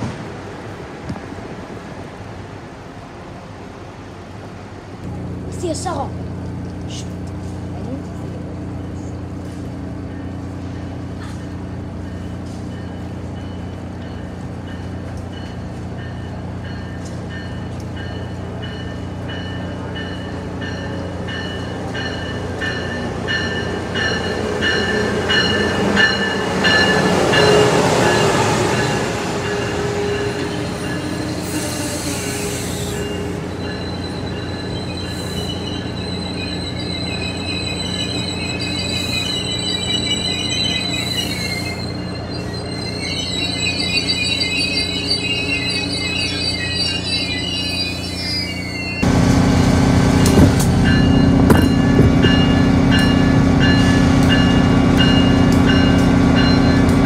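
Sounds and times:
train passing through station: 0.0 - 57.0
high wheel squeal: 28.8 - 49.0.

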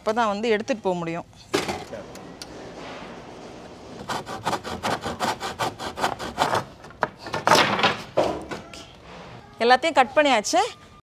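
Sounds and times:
hand saw cutting wood: 4.0 - 6.8.

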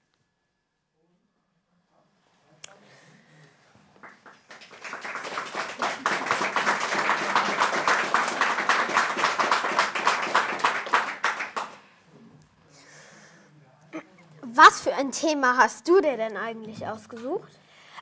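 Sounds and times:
applause: 4.0 - 11.9.

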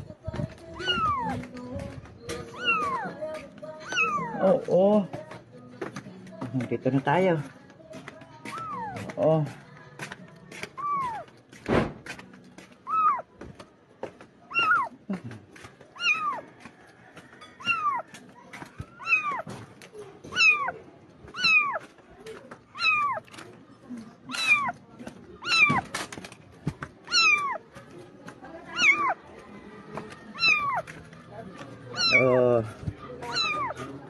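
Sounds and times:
kitten meowing: 0.8 - 1.4, 2.5 - 3.1, 3.8 - 4.4, 10.8 - 11.2, 12.8 - 13.2, 14.5 - 14.9, 16.0 - 16.4, 17.6 - 18.0, 19.0 - 19.4, 20.3 - 21.8, 22.7 - 23.2, 24.3 - 24.7, 25.4 - 25.8, 27.1 - 27.6, 28.7 - 29.2, 30.3 - 30.8, 31.9 - 32.3, 33.2 - 33.8.

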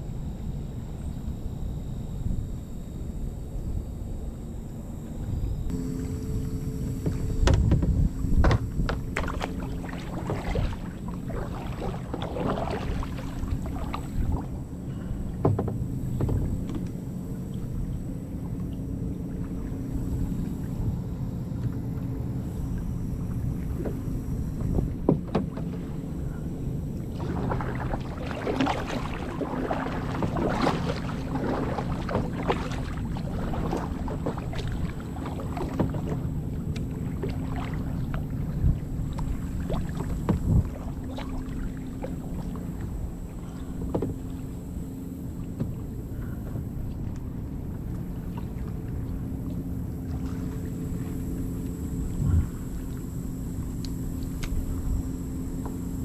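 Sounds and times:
steady low hum: 0.0 - 56.0
water splashing and lapping: 5.3 - 56.0
knocks on kayak hull: 7.0 - 9.4, 15.4 - 16.8.

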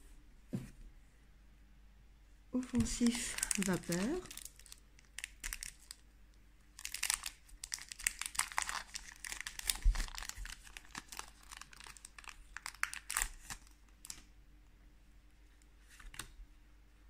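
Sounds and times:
foil wrapper crinkling and tearing: 3.0 - 6.0, 6.7 - 14.2.

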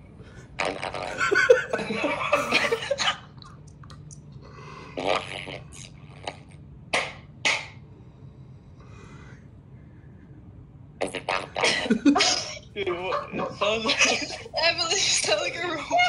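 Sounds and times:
laughter: 1.1 - 3.0.

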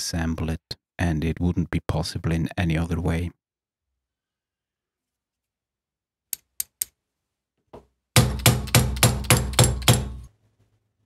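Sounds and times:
hammer strikes on steel: 8.2 - 10.3.

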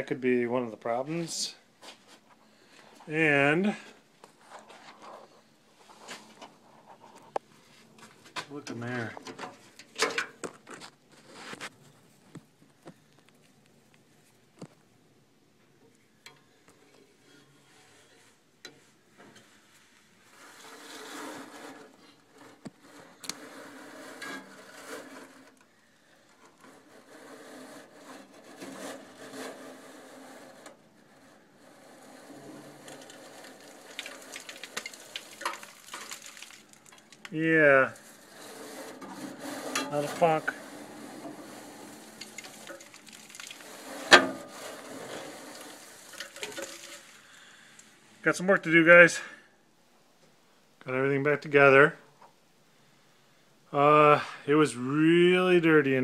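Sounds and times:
wire brush scraping soot: 10.6 - 12.1, 16.9 - 48.3.

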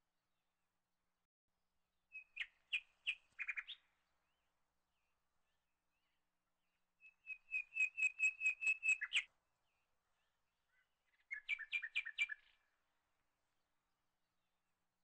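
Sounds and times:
bird chirping whistled notes: 7.2 - 9.3.

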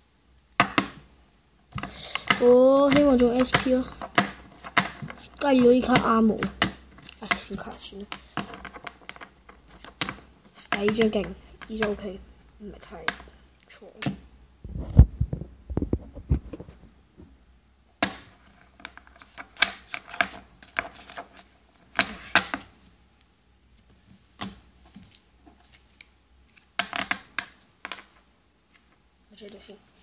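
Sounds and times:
cards clicking and rustling: 1.8 - 12.1, 18.0 - 22.8.

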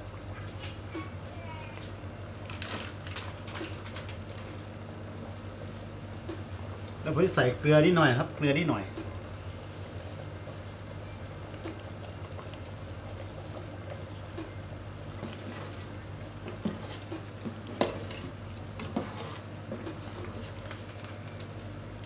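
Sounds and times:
curry bubbling in a pot: 2.0 - 22.0
ladle scraping and knocking pot: 15.2 - 20.5.

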